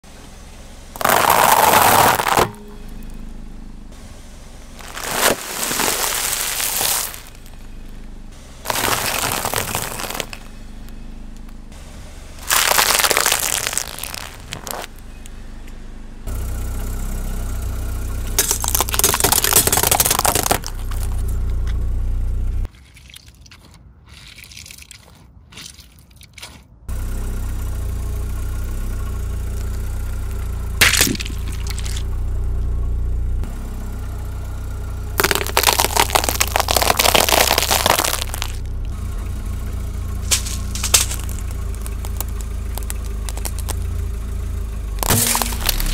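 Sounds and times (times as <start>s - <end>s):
car engine rumble: 0.0s - 22.7s, 26.7s - 45.9s
tyre crushing objects: 1.0s - 2.6s, 4.8s - 7.6s, 8.6s - 10.5s, 12.4s - 14.9s, 18.4s - 21.2s, 30.8s - 32.0s, 35.2s - 38.7s, 40.2s - 43.8s, 45.0s - 45.9s.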